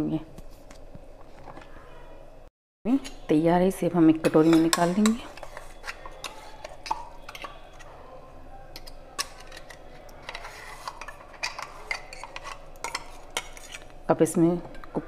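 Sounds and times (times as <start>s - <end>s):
steel jar and bowl clinking: 4.3s - 7.9s, 8.8s - 13.9s.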